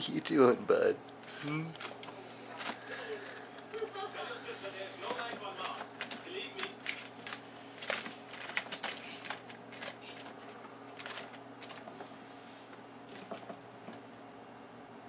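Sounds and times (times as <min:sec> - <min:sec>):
squirrel claws scratching plastic: 0:05.0 - 0:11.9.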